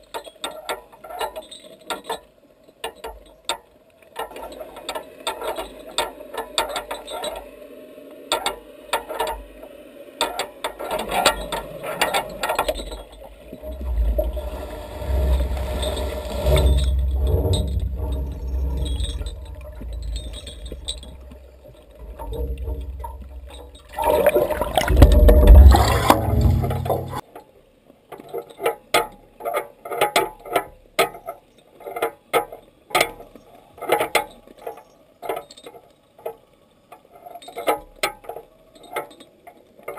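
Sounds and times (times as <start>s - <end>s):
low rushing water rumble: 12.6s - 27.2s.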